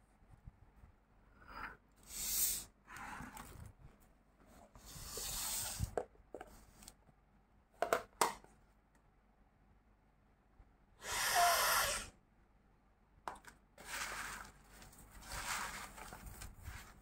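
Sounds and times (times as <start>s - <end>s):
plastic tub rubbing and scraping: 13.8s - 17.0s.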